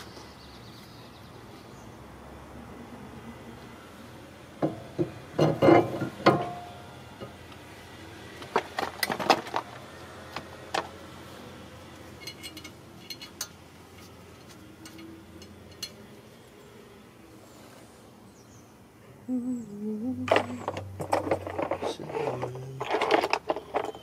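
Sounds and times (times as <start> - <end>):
light metal ticks: 12.2 - 16.0.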